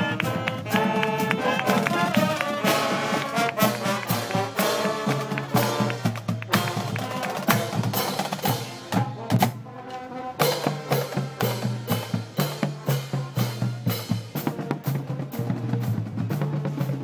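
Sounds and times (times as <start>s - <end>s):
brass instruments playing: 0.0s - 17.0s
snare and bass drums marching: 0.0s - 17.0s.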